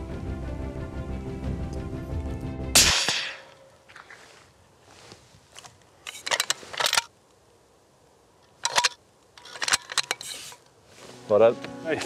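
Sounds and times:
sharp clicks and rustles: 5.5 - 7.1, 8.4 - 10.8.

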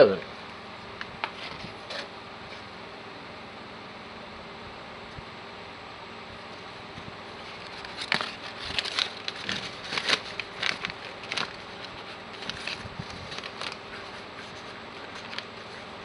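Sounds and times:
packaging crackling and rustling: 7.4 - 16.0.

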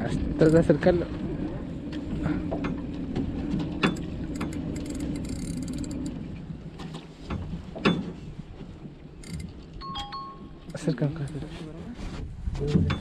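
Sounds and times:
fishing reel whirring and clicking: 3.9 - 6.2, 9.2 - 9.6.

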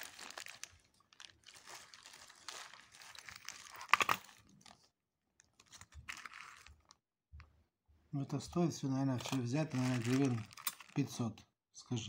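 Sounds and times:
plastic bags of coins crinkling: 0.0 - 4.8, 5.4 - 7.0, 9.1 - 11.2.

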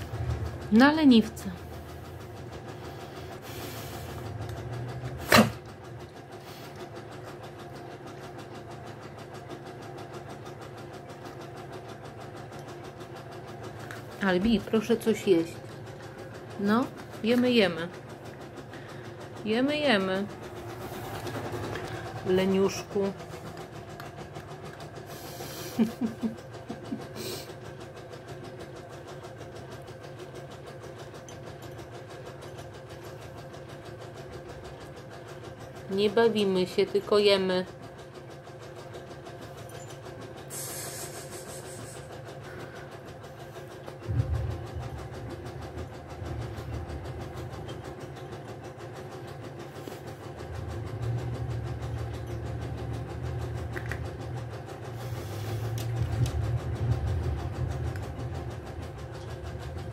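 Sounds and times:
faint rhythmic machine noise: 0.0 - 59.9
steady pulsing mechanical hum: 0.0 - 59.9
brief hissy noises: 40.5 - 42.0
short low sounds: 44.1 - 45.4.

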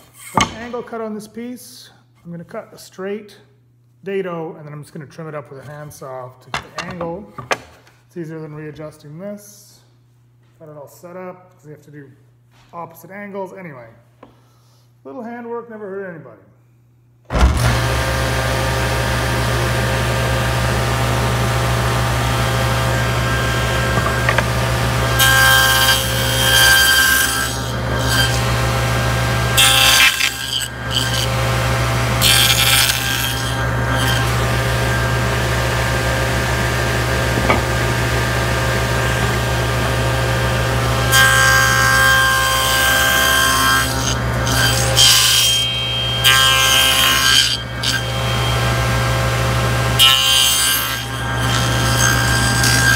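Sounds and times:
saw blade cutting wood: 0.0 - 0.8, 22.4 - 40.0, 40.7 - 49.2, 49.9 - 52.9
power saw motor hum: 17.4 - 41.8.

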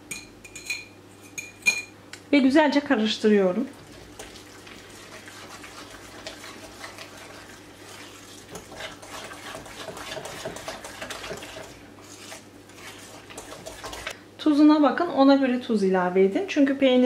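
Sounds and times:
fork stirring in glass bowl: 3.8 - 14.2.

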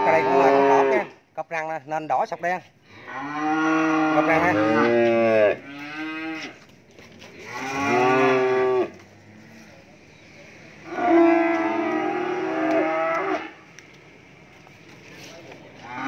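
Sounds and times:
cattle mooing: 0.0 - 1.1, 2.9 - 6.6, 7.4 - 9.6, 10.8 - 13.6.

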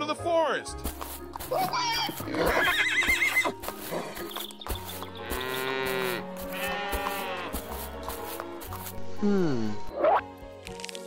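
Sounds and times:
background music: 0.0 - 11.0
horse whinny: 2.3 - 4.2
livestock calls: 5.1 - 8.1.

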